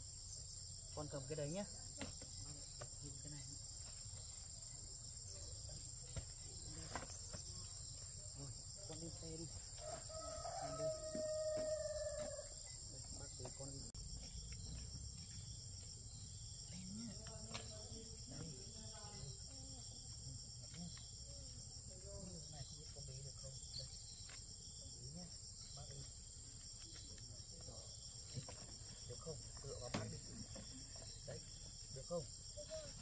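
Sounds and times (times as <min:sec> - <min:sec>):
high insect chirring: 0:00.0 - 0:33.0
rooster crowing: 0:09.8 - 0:12.6.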